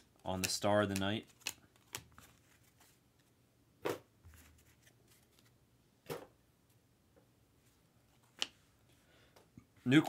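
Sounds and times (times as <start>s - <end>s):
trading cards rustling: 0.3s - 3.0s.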